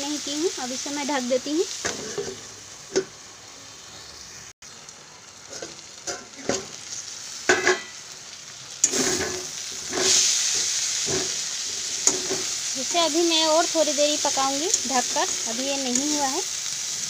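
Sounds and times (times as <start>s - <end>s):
food sizzling in a pan: 0.0s - 17.0s
metal spatula scraping a pan: 1.8s - 3.1s, 8.8s - 12.6s.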